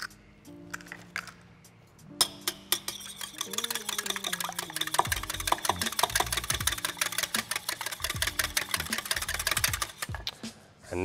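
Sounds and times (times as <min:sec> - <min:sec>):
whisk clinking against glass bowl: 0:02.2 - 0:10.0.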